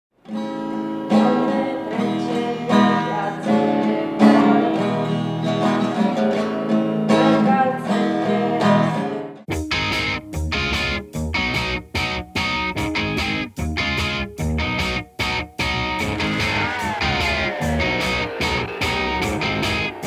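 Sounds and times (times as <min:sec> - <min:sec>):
acoustic guitar strumming chords: 0:00.2 - 0:20.0
choppy music with sharp hits: 0:09.5 - 0:20.0.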